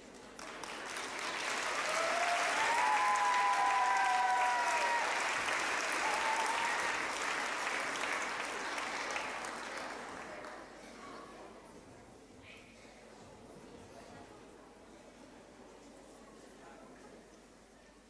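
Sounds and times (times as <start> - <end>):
audience applauding: 0.0 - 10.6
cheering cries: 1.7 - 7.4.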